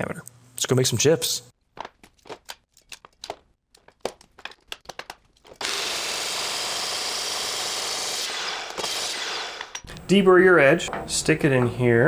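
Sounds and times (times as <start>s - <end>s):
chop saw cutting metal: 5.6s - 9.9s.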